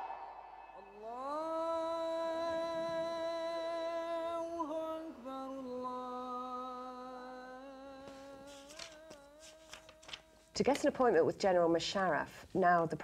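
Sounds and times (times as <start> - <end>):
person singing a long held note: 0.8 - 10.2.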